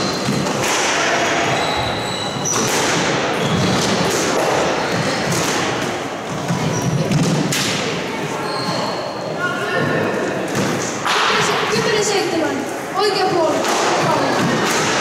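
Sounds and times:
squash ball hitting rackets and walls: 0.0 - 9.2, 9.8 - 11.9, 13.3 - 15.0
shoes squeaking on wooden floor: 1.4 - 2.7, 3.3 - 5.3, 8.2 - 10.1.

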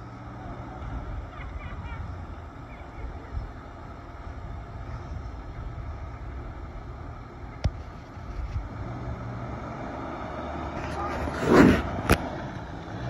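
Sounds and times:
car engine running: 0.0 - 13.0.

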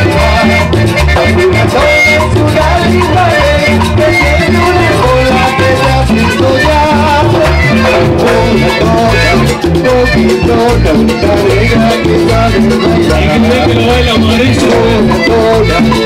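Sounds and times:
salsa dance music: 0.0 - 16.0.

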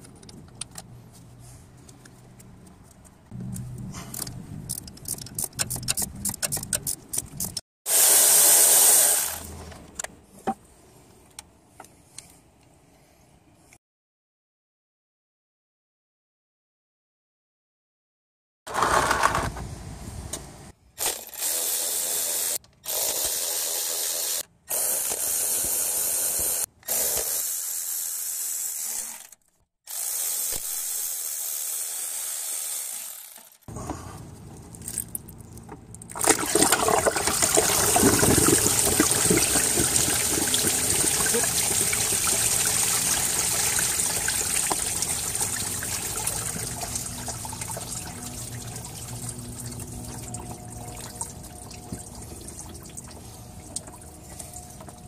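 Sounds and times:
coolant pouring out: 36.1 - 54.1.

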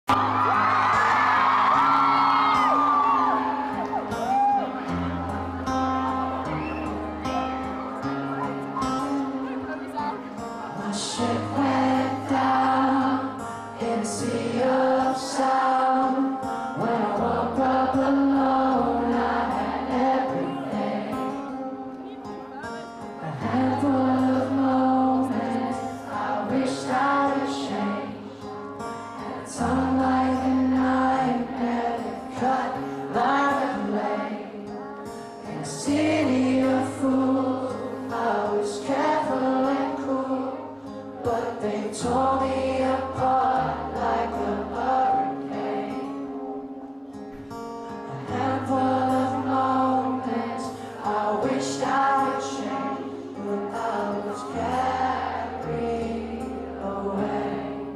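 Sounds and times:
crowd singing along: 0.0 - 57.9
amplified acoustic guitar: 0.1 - 57.9
man singing lead vocals: 10.7 - 21.6, 23.1 - 28.7, 29.3 - 46.1, 48.0 - 57.8.

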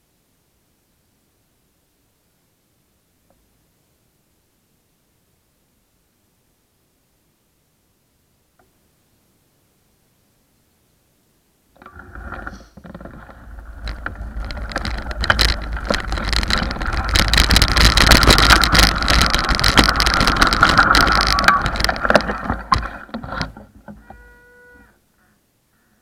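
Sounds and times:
bike rattling: 11.8 - 24.4
tyres crunching on gravel: 13.2 - 24.3.

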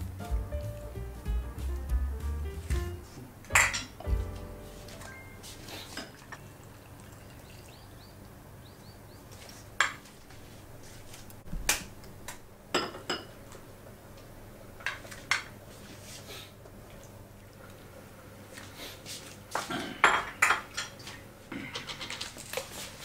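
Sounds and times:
dishes and cutlery clinking: 3.5 - 4.2, 19.8 - 21.0, 21.6 - 22.4.

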